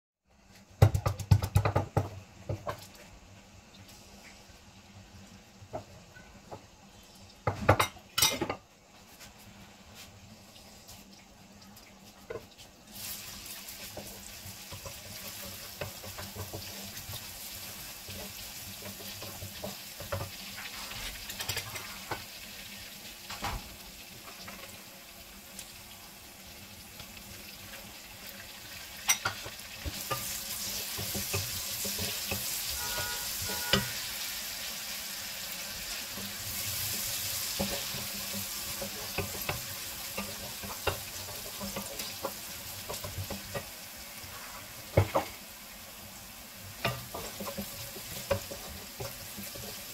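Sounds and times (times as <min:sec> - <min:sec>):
garlic and onion frying in oil: 0:00.2 - 0:49.9
wooden spatula scraping metal pan: 0:29.9 - 0:34.1.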